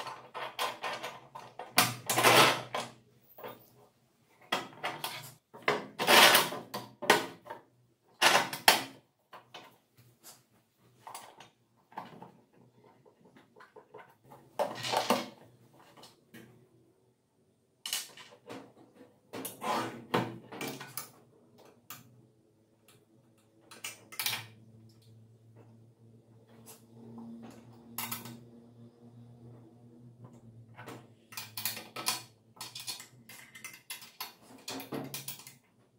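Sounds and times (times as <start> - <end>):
metal and plastic parts clanking: 0.0 - 3.5, 17.9 - 22.0, 30.8 - 35.7.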